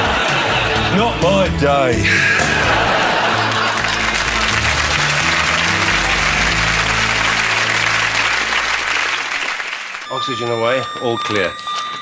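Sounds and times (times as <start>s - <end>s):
audience applauding: 2.4s - 11.2s.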